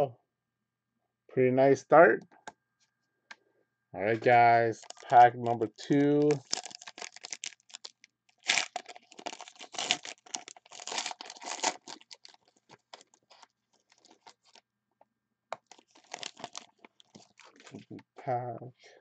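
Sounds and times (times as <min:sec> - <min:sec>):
foil wrapper tearing and crinkling: 0:04.8 - 0:14.6, 0:15.6 - 0:17.8.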